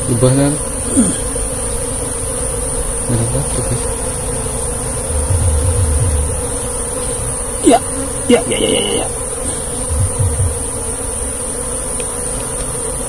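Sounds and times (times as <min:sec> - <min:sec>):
bees buzzing: 0:00.0 - 0:13.0
handling bumps: 0:05.1 - 0:06.5, 0:09.5 - 0:10.8.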